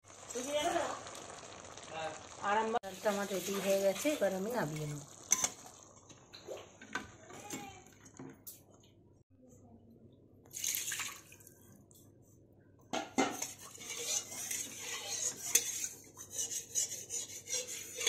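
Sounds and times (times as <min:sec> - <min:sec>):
metal utensils clinking on cookware: 0:03.4 - 0:05.7, 0:13.2 - 0:18.0.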